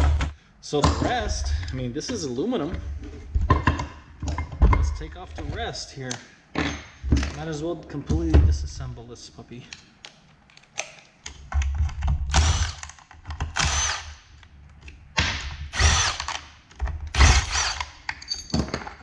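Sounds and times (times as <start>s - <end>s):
power driver motor whining: 17.2s - 17.9s.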